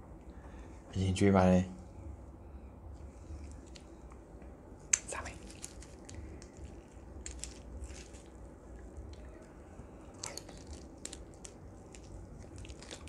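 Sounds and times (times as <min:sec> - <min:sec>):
chewing: 0:04.9 - 0:13.0
crisp crunching bite: 0:05.0 - 0:08.4, 0:10.1 - 0:13.0.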